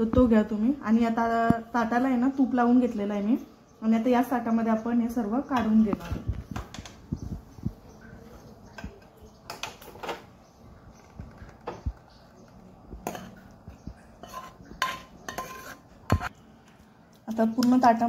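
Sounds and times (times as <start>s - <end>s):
metal spoon scraping metal pan: 13.0s - 13.5s, 14.2s - 16.3s.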